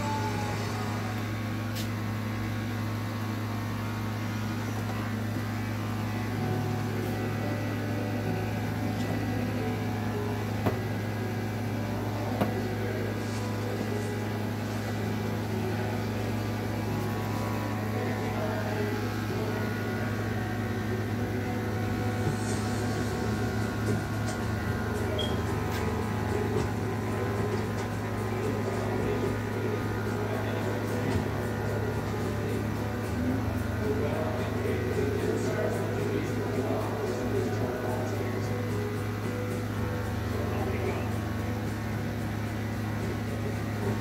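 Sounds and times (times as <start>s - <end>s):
electric clippers buzzing: 3.7s - 33.9s.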